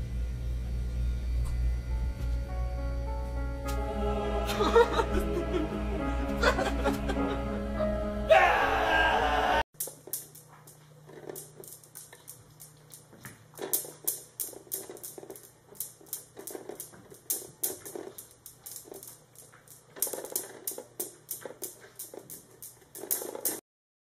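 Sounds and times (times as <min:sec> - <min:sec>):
steel balls clicking: 0:09.8 - 0:23.6.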